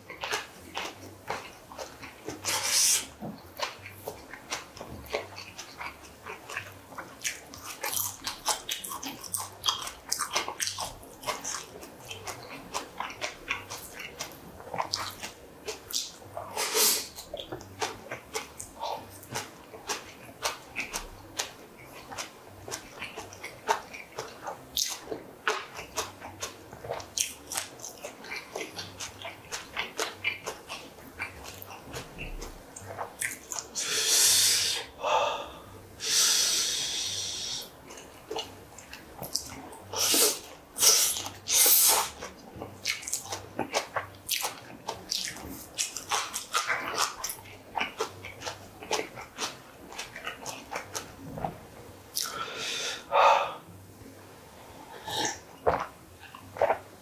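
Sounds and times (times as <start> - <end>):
chewing with wet smacks: 0.0 - 33.8, 37.0 - 52.4, 54.8 - 57.0
hissing breaths: 33.8 - 37.7, 52.2 - 53.7.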